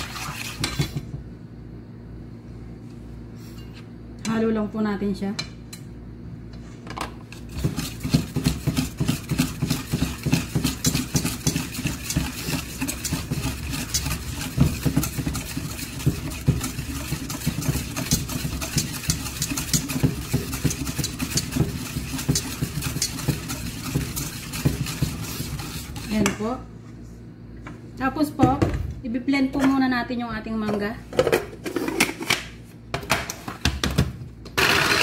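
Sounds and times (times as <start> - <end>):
whisk beating in metal bowl: 0.0 - 1.0, 7.3 - 26.6.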